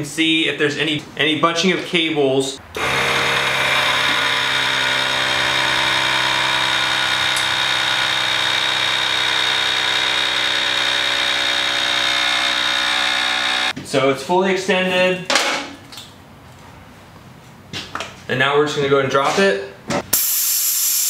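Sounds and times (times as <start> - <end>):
air compressor humming: 2.7 - 13.8, 20.1 - 21.0.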